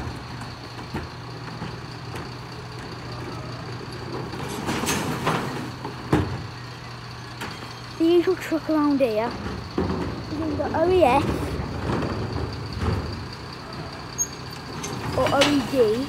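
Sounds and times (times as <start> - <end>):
truck engine idling: 0.0 - 16.0.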